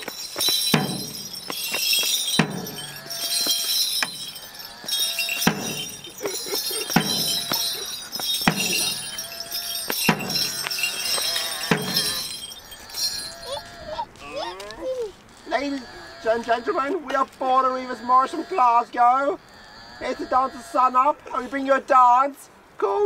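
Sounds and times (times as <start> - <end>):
leg bells jingling: 0.0 - 19.0
wooden stick knocking on road: 9.9 - 12.4.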